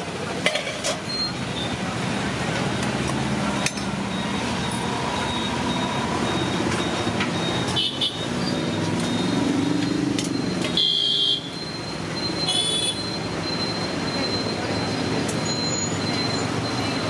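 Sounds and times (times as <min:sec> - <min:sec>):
street traffic passing: 0:00.0 - 0:17.0
vehicle horn toots: 0:10.7 - 0:11.5.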